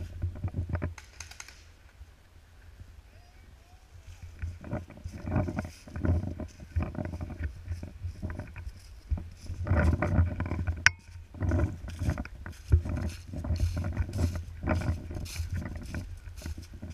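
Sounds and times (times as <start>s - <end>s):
footsteps through dry leaves: 11.1s - 16.9s.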